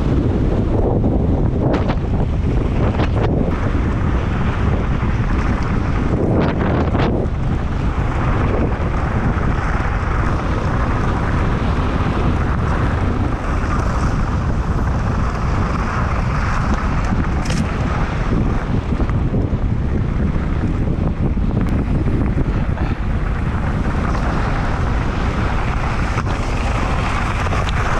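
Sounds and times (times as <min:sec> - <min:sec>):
wind buffeting microphone: 0:00.0 - 0:27.9
tyres rolling over gravel: 0:21.6 - 0:27.9.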